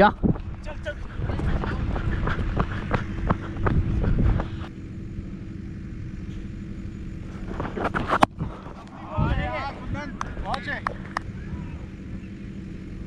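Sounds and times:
footsteps on dirt: 0.0 - 4.7
wind rumbling on microphone: 0.0 - 4.7, 7.3 - 12.4
faint steady hum: 0.0 - 13.0.

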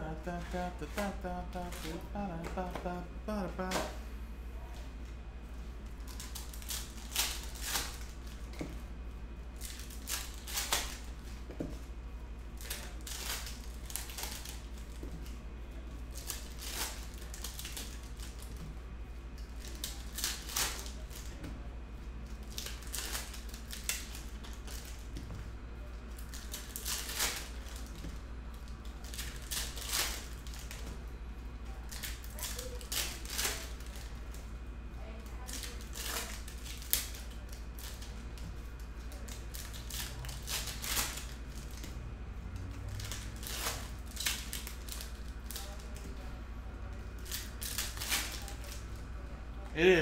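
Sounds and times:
steady low hum: 0.0 - 50.0
foil wrappers tearing and crinkling: 6.1 - 8.5, 9.6 - 11.3, 12.6 - 15.0, 16.1 - 18.5, 19.4 - 21.4, 22.4 - 25.0, 26.1 - 28.0, 28.8 - 30.8, 31.7 - 34.2, 35.2 - 38.2, 39.0 - 41.8, 42.9 - 46.0, 47.2 - 48.8.

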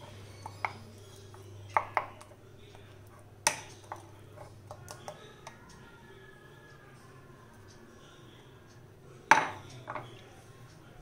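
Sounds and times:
spoon stirring thick batter: 0.0 - 8.6.

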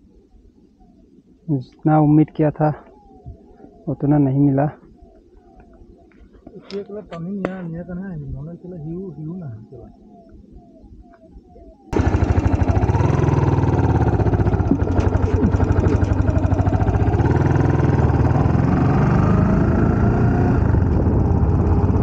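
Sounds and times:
small engine running: 12.0 - 22.0.

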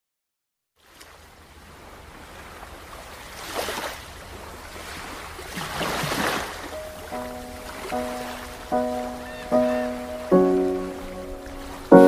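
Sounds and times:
rushing surf-like noise: 6.0 - 12.0.

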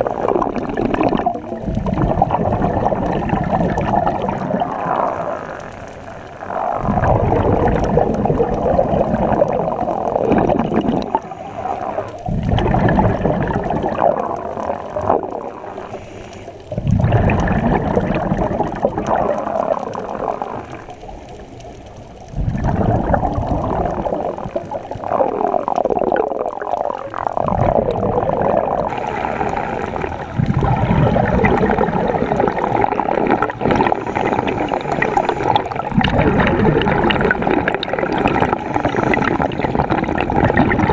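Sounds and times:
regulator bubbles gurgling underwater: 0.0 - 40.9.

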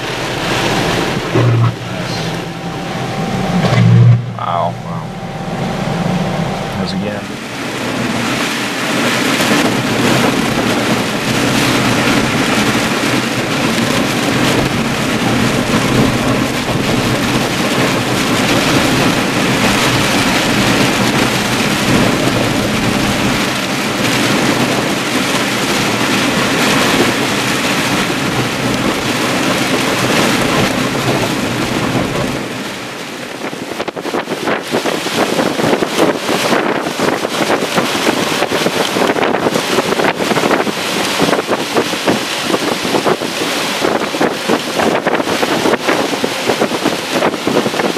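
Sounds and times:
low hum: 0.0 - 25.3
wind and rain on microphone: 0.0 - 47.9.

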